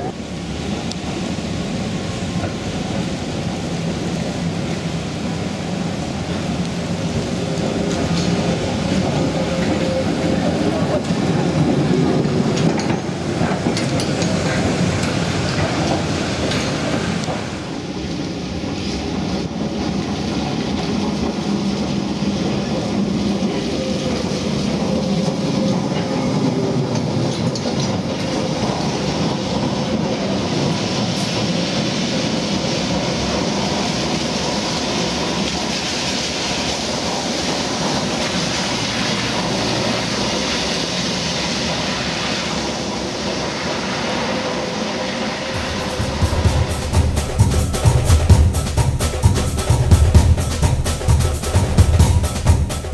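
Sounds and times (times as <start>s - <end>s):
tram running on rails: 0.0s - 52.9s.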